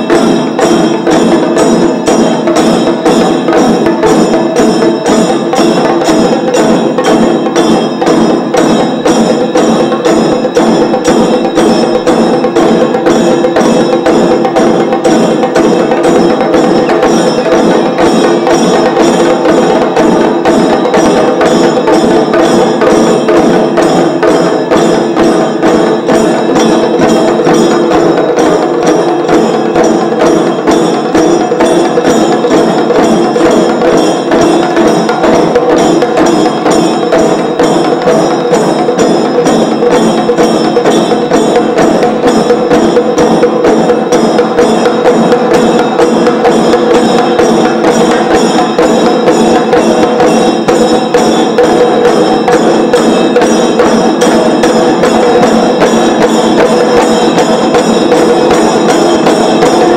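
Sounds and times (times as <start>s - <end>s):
drums played with sticks: 0.0s - 59.9s
steady ringing tones: 0.0s - 59.9s.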